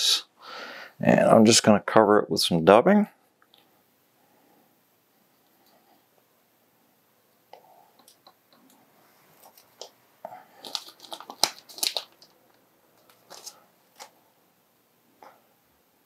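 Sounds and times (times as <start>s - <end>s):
dry crackling and rustling of fibres: 10.5s - 14.2s.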